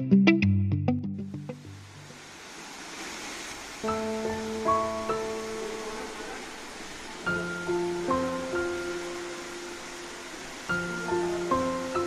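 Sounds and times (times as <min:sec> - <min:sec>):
guitar notes: 0:00.0 - 0:02.2
waterfall rushing: 0:01.4 - 0:12.0.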